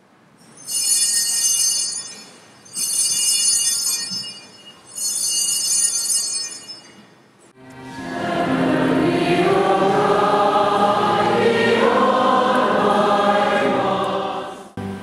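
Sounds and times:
small altar bells ringing: 0.4s - 7.4s.

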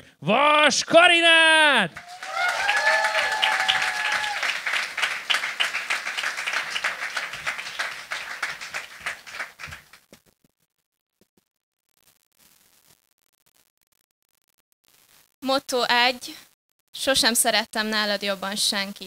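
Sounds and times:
audience applauding: 1.9s - 10.1s.

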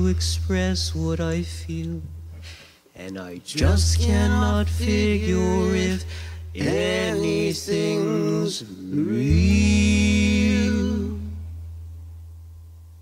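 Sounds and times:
deep sustained bass note: 0.0s - 2.4s, 3.6s - 7.4s, 9.2s - 13.0s
voices singing: 3.0s - 11.5s.

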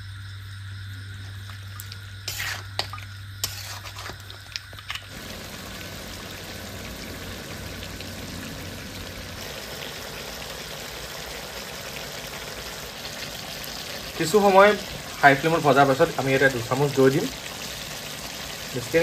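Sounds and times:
spatula scraping pan: 2.2s - 4.2s
meat sizzling in pan: 5.1s - 19.0s.

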